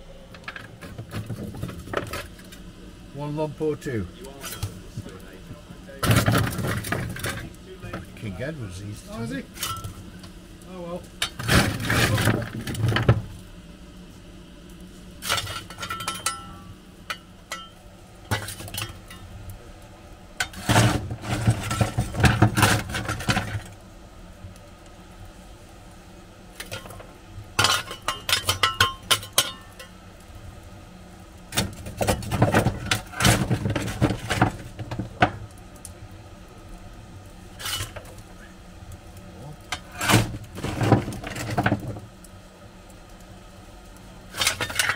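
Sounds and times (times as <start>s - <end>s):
steady low hum: 0.0s - 44.9s
metal shovel scraping coal: 0.5s - 2.6s, 4.3s - 4.8s, 5.9s - 10.0s, 11.2s - 13.4s, 15.1s - 19.3s, 20.4s - 23.8s, 26.5s - 30.0s, 31.5s - 35.5s, 37.5s - 38.5s, 39.6s - 42.1s, 44.3s - 44.9s
shovel clanking against firehole: 9.5s - 10.0s, 15.2s - 19.3s, 20.4s - 23.7s, 26.6s - 30.0s, 37.6s - 38.2s, 39.7s - 42.0s, 44.3s - 44.9s.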